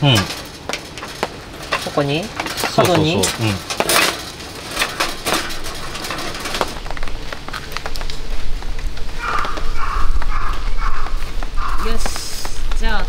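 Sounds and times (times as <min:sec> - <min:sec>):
rain hissing: 0:00.0 - 0:13.0
metal panels clicking: 0:00.1 - 0:07.2.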